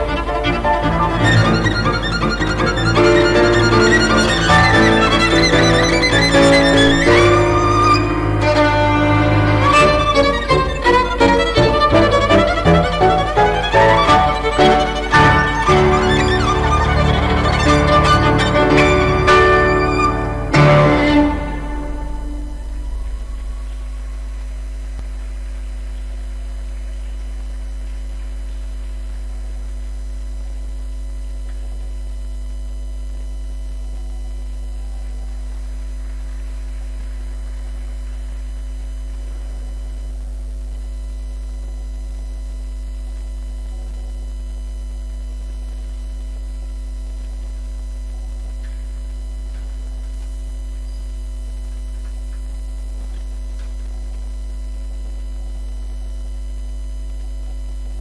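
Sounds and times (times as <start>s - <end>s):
faint steady tones: 0.0s - 25.0s
mains hum: 0.0s - 58.0s.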